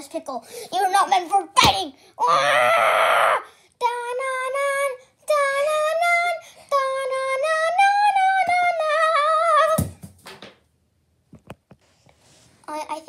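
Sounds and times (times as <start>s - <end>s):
child singing wordless tune: 0.0s - 2.1s, 3.7s - 9.8s.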